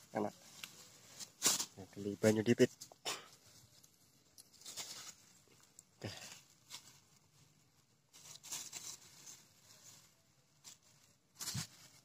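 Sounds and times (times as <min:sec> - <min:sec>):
plastic bag rustling: 0:03.4 - 0:12.0.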